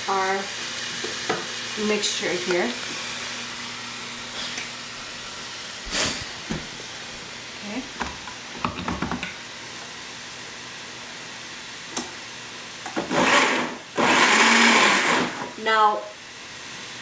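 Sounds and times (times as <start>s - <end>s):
chicken sizzling in hot oil: 0.0s - 8.6s.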